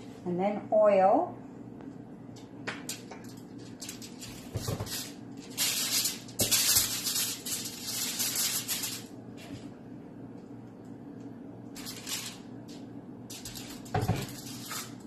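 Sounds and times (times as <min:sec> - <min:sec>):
aluminium foil crinkling: 0:02.8 - 0:09.6, 0:11.7 - 0:15.0.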